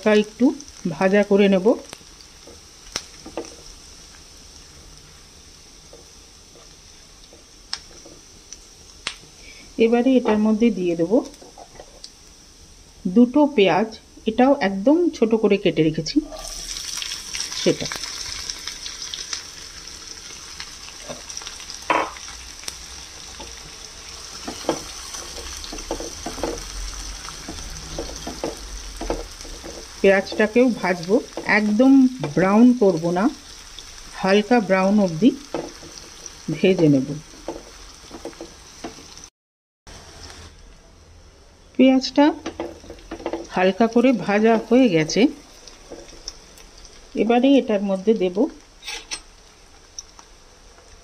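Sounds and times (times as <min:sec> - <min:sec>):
spices sizzling in hot oil: 0:00.0 - 0:39.3, 0:39.9 - 0:40.6, 0:41.7 - 0:51.0
spatula scraping a pan: 0:48.8 - 0:49.3.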